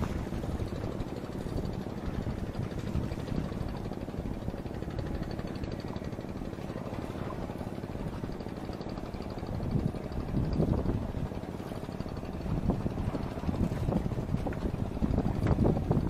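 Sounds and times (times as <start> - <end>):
motor engine droning: 0.0 - 16.0.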